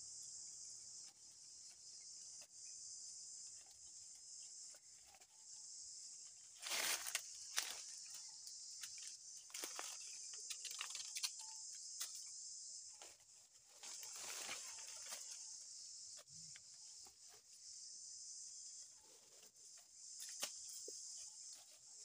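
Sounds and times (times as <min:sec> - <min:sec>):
insects buzzing: 0:00.0 - 0:22.0
dry leaves rustling: 0:06.6 - 0:08.0, 0:13.7 - 0:15.4.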